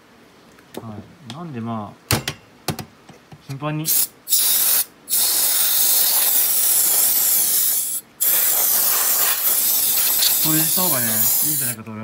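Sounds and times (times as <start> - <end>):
compressed air can spraying: 3.9 - 11.8.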